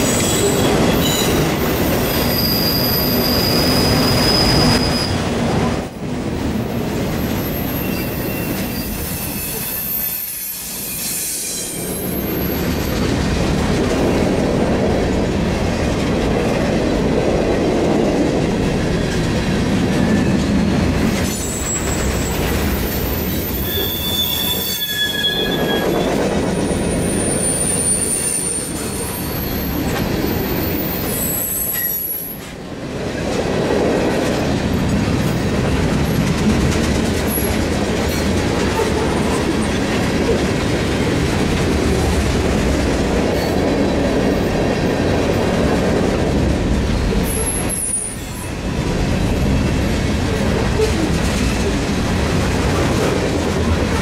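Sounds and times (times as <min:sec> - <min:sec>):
high-pitched wheel squeals: 0:00.0 - 0:05.2, 0:07.4 - 0:12.6, 0:21.3 - 0:32.4
train wheels rumbling on rail: 0:00.0 - 0:54.0.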